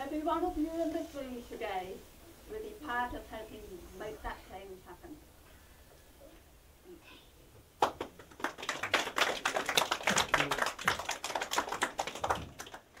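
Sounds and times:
audience clapping: 7.8 - 13.0.

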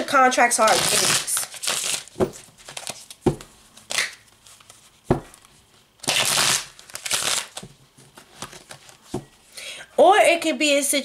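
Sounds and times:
cards being shuffled: 0.6 - 9.3.

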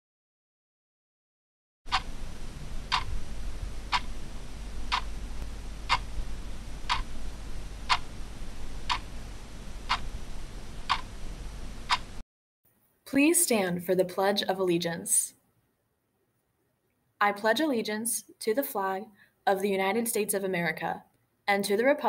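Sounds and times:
low steady rumble: 1.9 - 12.2
clock ticking: 6.9 - 7.1.

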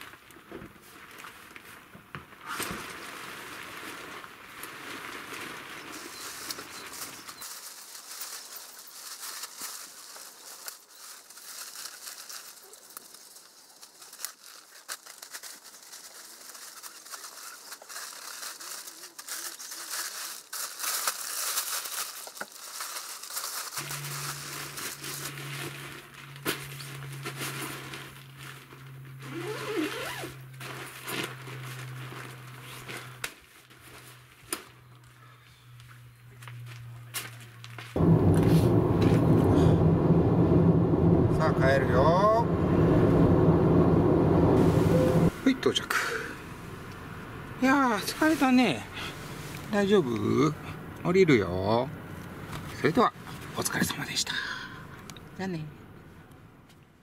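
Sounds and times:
tent fabric rustling: 0.0 - 34.8, 47.6 - 50.5
steady low hum: 38.0 - 51.0.

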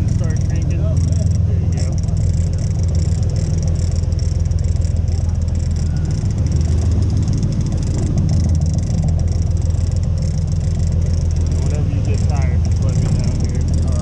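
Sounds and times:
boat engine droning: 0.0 - 14.0.

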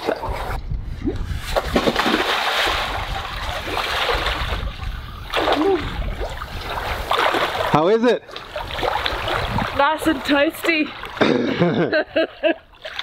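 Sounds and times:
water churning: 0.0 - 11.6, 12.6 - 13.0
splash into water: 1.4 - 9.8.

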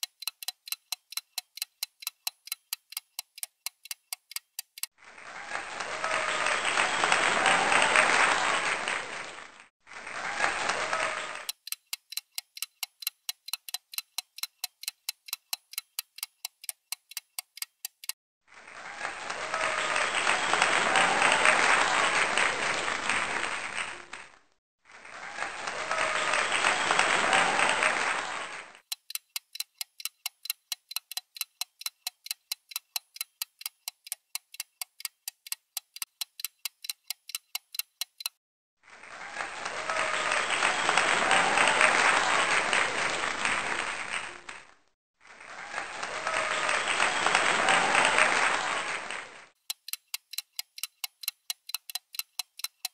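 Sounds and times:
clock ticking: 0.0 - 5.0, 11.4 - 18.2, 28.8 - 38.4, 49.6 - 52.9
crowd applause: 5.1 - 11.5, 18.6 - 24.4, 25.0 - 28.8, 38.9 - 49.5.

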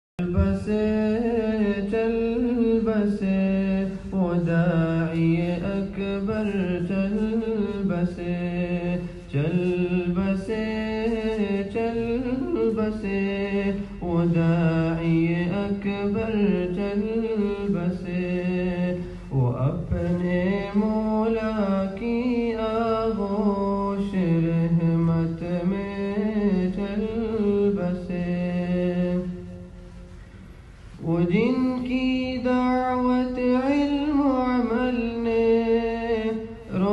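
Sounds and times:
man singing slowly: 0.2 - 29.6.

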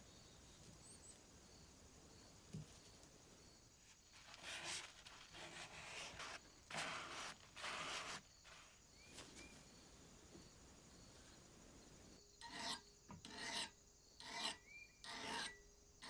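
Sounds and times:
paper towel rubbing metal blade: 4.2 - 8.7.

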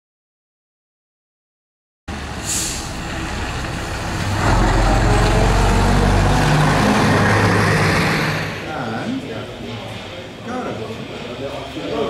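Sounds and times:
diesel bus engine passing: 2.1 - 10.2
short hiss: 2.4 - 3.0.

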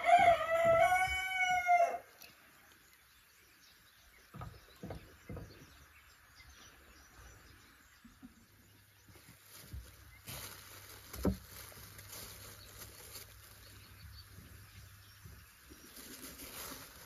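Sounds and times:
rooster crowing: 0.0 - 2.1
soft knocks: 4.3 - 5.8.

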